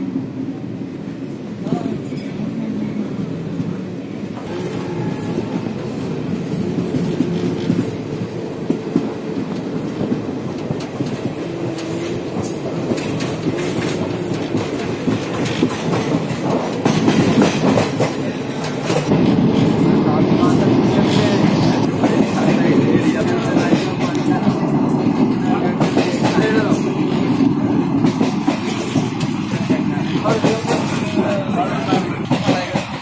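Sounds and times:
train rumble inside carriage: 0.0s - 33.0s
wheels clacking over rail joints: 6.4s - 19.2s.

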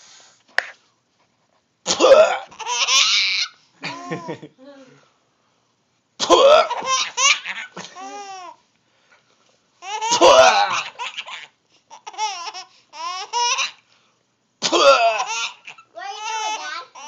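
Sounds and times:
baby laughing: 2.4s - 4.4s, 6.6s - 8.6s, 9.8s - 13.8s, 15.1s - 17.0s.

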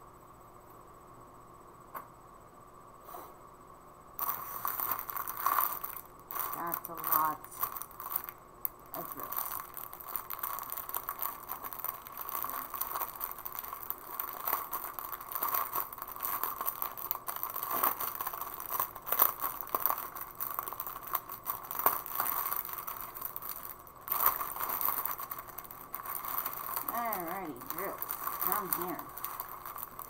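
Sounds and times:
plastic wrapping crinkling: 4.2s - 30.0s.

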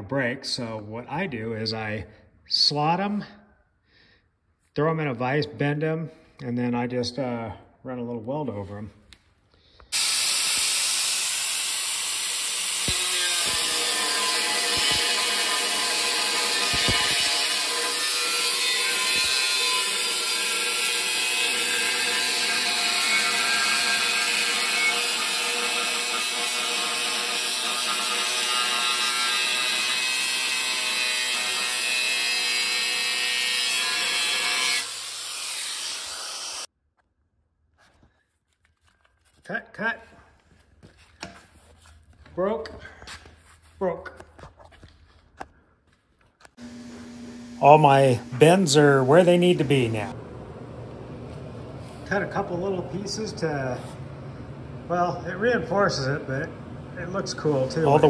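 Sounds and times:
angle grinder cutting steel: 9.9s - 36.7s, 46.6s - 50.2s, 57.8s - 58.0s.

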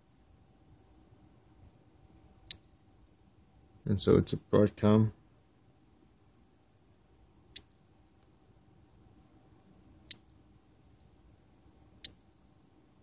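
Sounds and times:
sharp high clicks: 7.5s - 7.8s, 12.0s - 12.3s.

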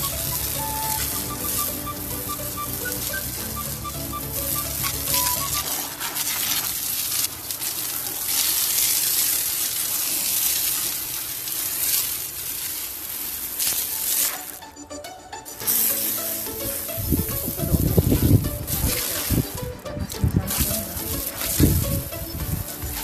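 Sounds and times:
background music: 0.0s - 6.9s, 13.6s - 23.0s
hose spraying onto tiles: 0.0s - 14.8s, 15.4s - 23.0s.

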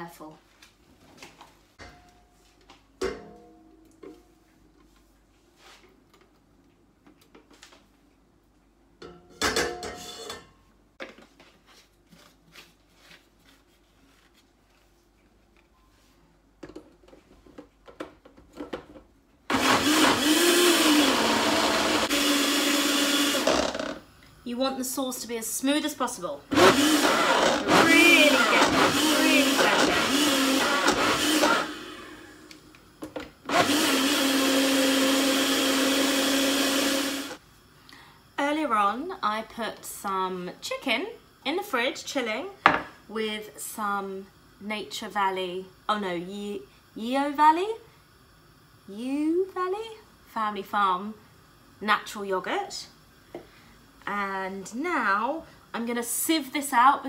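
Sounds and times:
blender motor whining: 19.5s - 24.0s, 26.5s - 32.6s, 33.4s - 37.4s.

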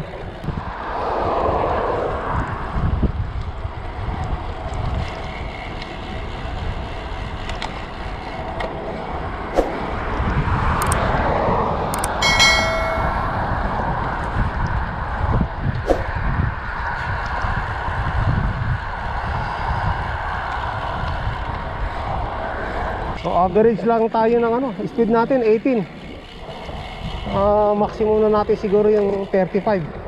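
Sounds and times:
road and traffic noise: 0.0s - 30.0s
wind rushing over microphone: 0.0s - 30.0s
short pitched tone: 12.2s - 13.7s.

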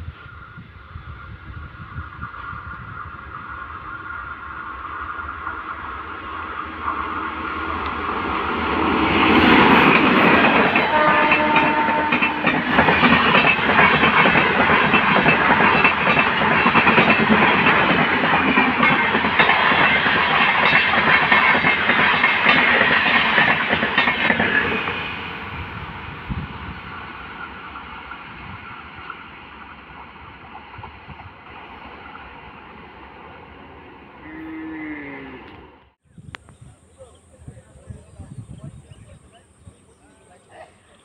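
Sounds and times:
train passing at speed: 0.0s - 34.6s
wheels clacking over rail joints: 5.1s - 34.0s.

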